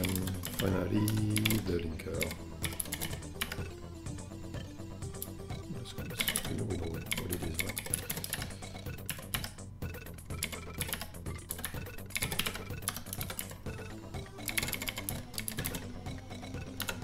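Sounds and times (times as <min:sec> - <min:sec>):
background music: 0:00.0 - 0:17.0
typing on computer keyboard: 0:06.2 - 0:08.5, 0:10.3 - 0:13.5, 0:14.4 - 0:15.8.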